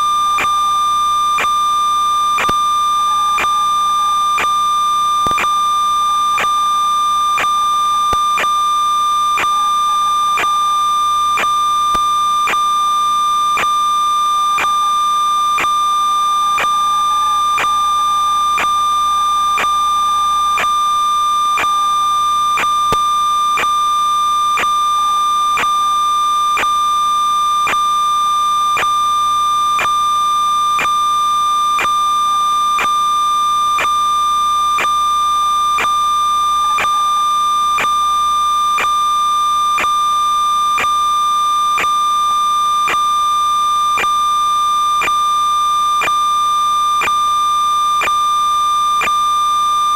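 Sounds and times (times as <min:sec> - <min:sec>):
sharp clicks: 0:05.2 - 0:05.5.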